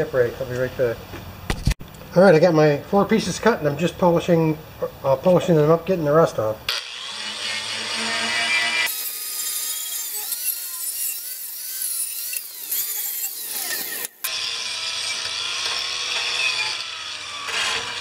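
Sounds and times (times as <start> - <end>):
power tool grinding steel: 6.7 - 18.0.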